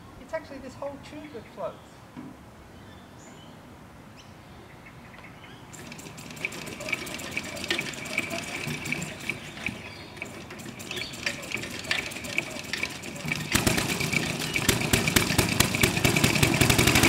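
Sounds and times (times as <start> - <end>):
motorcycle wheel clicking and rattling: 5.7 - 17.0.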